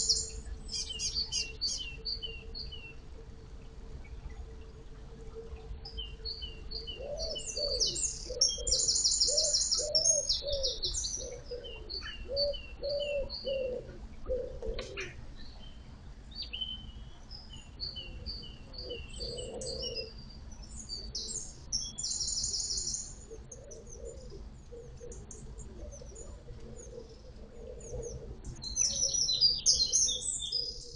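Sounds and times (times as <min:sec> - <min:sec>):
low cooing call: 0:00.0 - 0:15.3, 0:17.9 - 0:20.2, 0:22.5 - 0:30.9
birds trilling: 0:06.1 - 0:15.6, 0:18.3 - 0:30.9.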